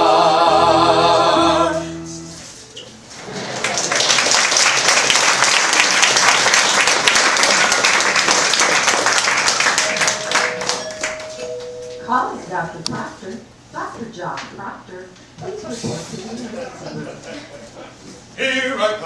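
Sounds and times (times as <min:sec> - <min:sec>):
singers holding final chord: 0:00.0 - 0:02.4
audience applause: 0:03.3 - 0:11.4.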